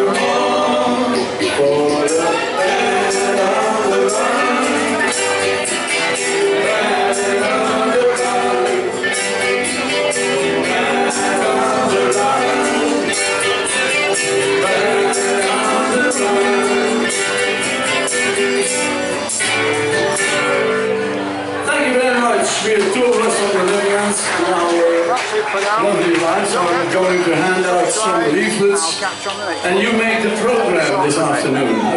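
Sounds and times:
person singing: 0.0 - 21.0
strummed acoustic guitar: 0.0 - 31.9
jingly percussion: 1.2 - 20.8.

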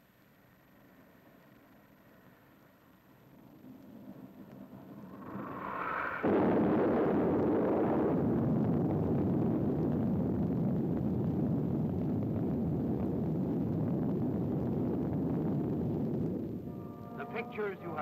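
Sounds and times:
deep rumble of blast wave: 4.0 - 18.0
explosion boom: 5.2 - 10.3.

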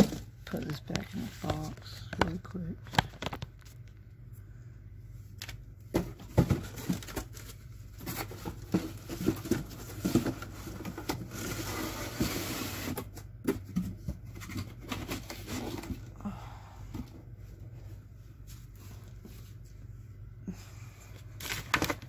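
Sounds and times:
plastic bags rustling: 0.0 - 4.0, 6.2 - 12.9.

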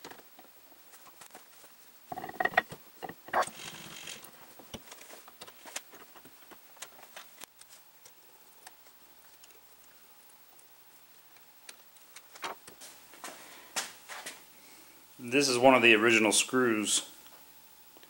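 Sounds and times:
metal clanks and knocks: 2.1 - 3.8.

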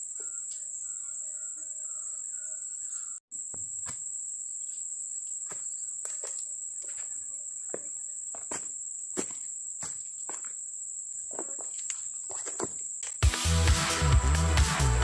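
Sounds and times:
insects droning: 0.0 - 13.2.

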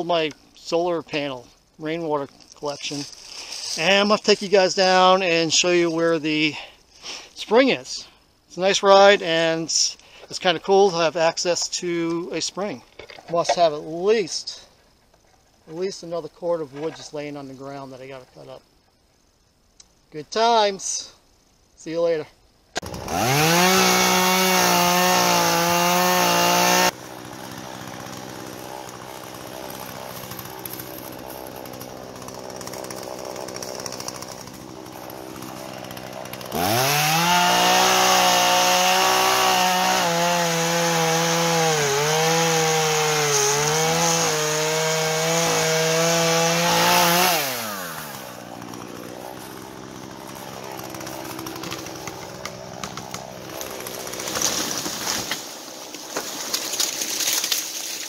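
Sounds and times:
chainsaw revving: 22.8 - 55.7.

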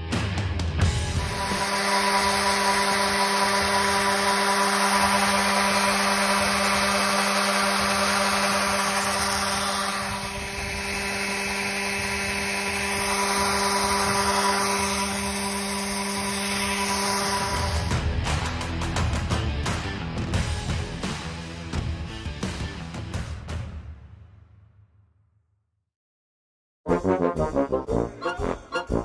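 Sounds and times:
power tool motor rasping: 1.1 - 18.0.

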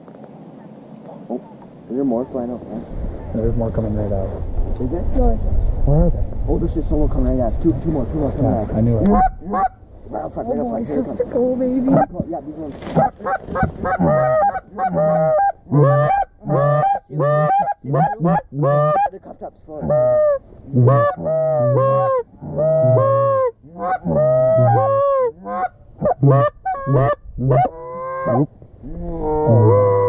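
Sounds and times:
goose honks and clucks: 8.9 - 12.2, 12.9 - 28.5, 29.5 - 30.0.

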